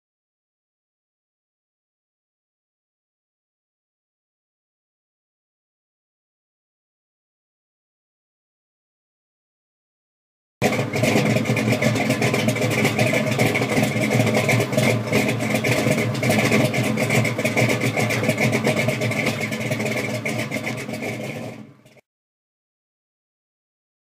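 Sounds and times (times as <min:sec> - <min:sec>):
car engine running: 0:10.6 - 0:22.0.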